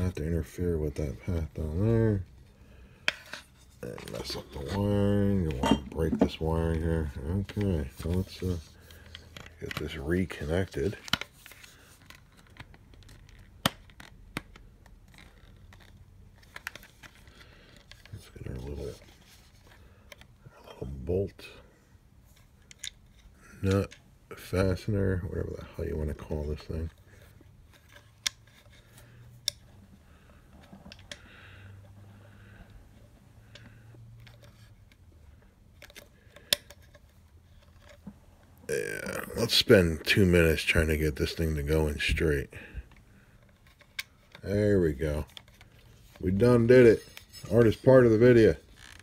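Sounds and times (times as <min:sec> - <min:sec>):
plastic parts clicking and tapping: 0:10.8 - 0:18.2, 0:35.7 - 0:38.1.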